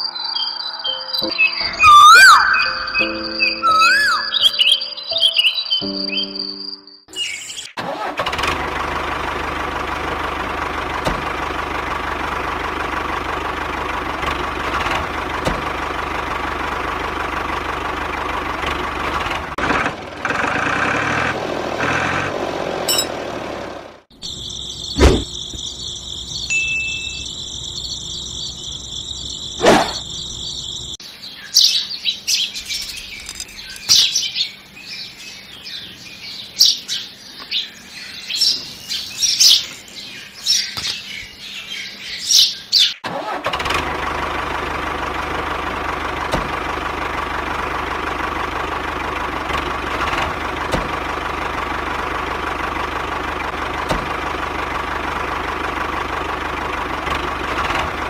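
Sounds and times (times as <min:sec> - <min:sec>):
birds chirping: 0:00.0 - 0:07.8, 0:24.1 - 0:43.0.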